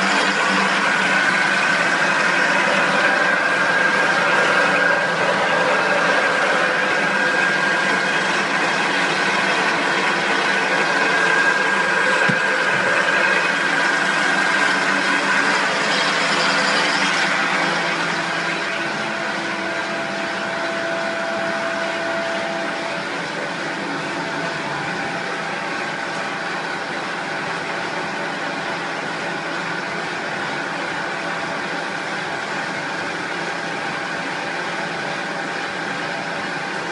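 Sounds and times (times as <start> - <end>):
thin high whine: 0.0 - 26.8
machinery whirring: 0.0 - 32.1.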